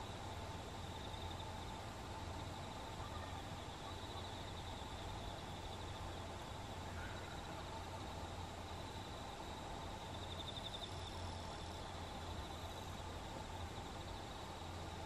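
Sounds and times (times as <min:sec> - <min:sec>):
low steady hum: 0:00.0 - 0:15.0
high-pitched insect trill: 0:07.1 - 0:14.8.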